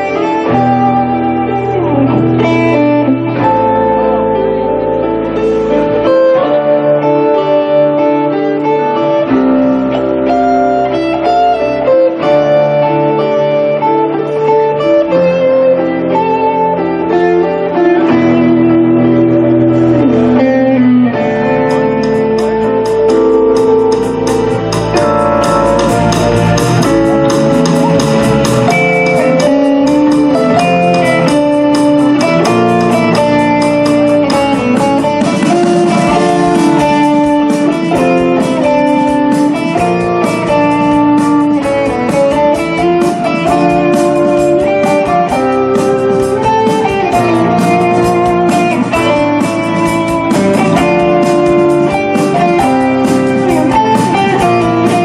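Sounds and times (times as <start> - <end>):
electric guitar melody: 0.0 - 55.0
live rock band playing: 0.0 - 55.0.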